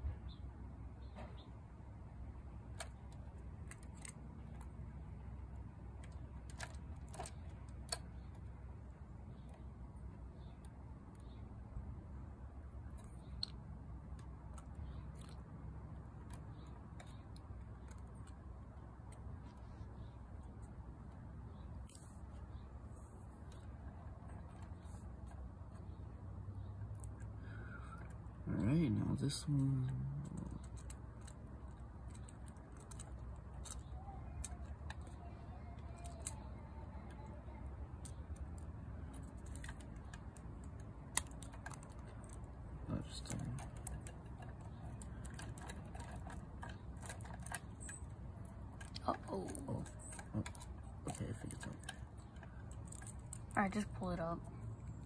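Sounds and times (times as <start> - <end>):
toy plastic parts clicking: 2.6 - 9.7, 26.9 - 55.0.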